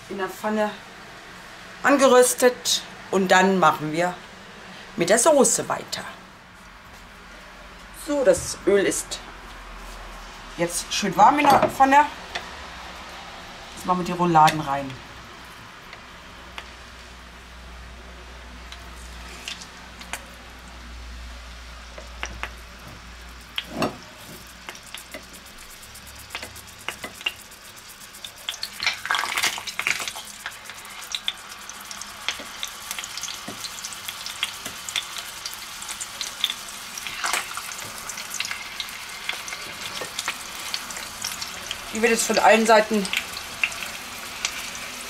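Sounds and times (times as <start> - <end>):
meat sizzling in a frying pan: 18.7 - 45.0.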